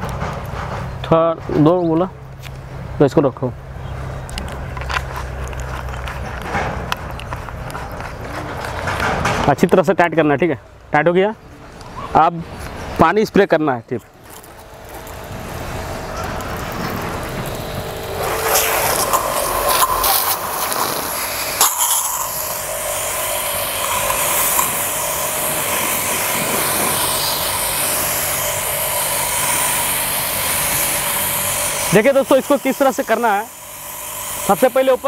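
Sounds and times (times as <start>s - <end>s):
pressure washer spraying: 14.2s - 35.0s.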